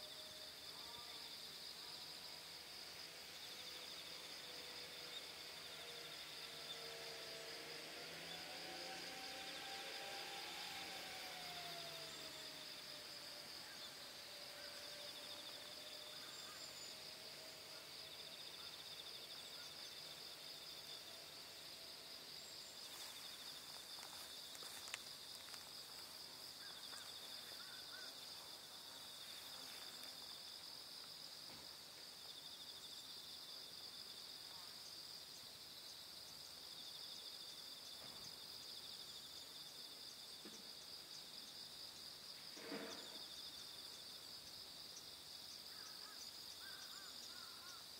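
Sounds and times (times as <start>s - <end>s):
insects chirring: 0.0s - 47.9s
second insect song: 0.0s - 47.9s.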